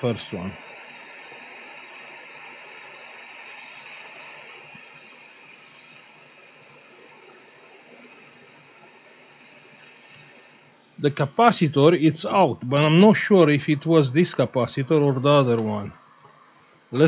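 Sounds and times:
hot air station hissing: 0.0 - 17.0.

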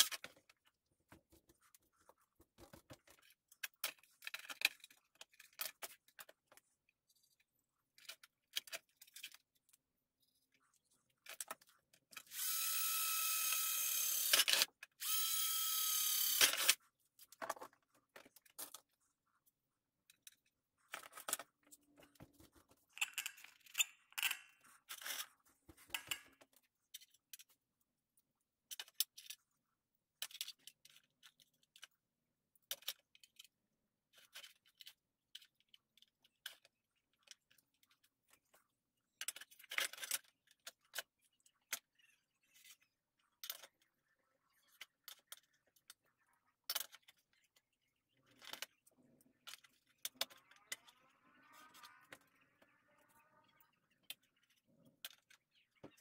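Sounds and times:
cordless drill in aluminium: 12.3 - 16.8.

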